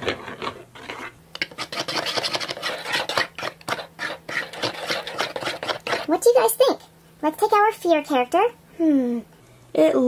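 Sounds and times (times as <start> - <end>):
stirring wand scraping plastic bowl: 0.0 - 6.4.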